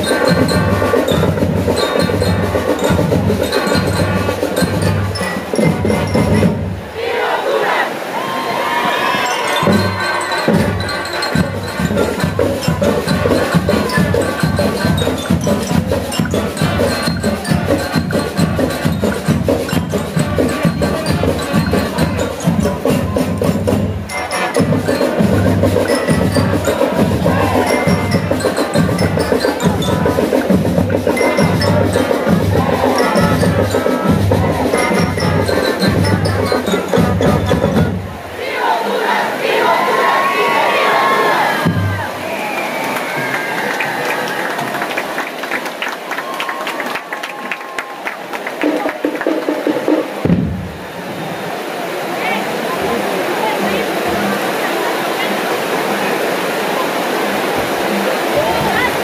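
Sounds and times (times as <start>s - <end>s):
steady drum beat: 0.0s - 6.8s, 9.6s - 38.2s
brass instruments playing: 0.0s - 7.9s, 9.2s - 42.1s.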